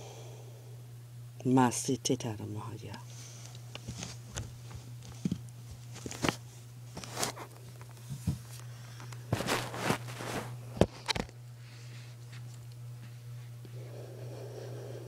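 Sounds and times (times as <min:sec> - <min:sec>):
low hum: 0:00.0 - 0:15.0
rustling: 0:03.8 - 0:10.6.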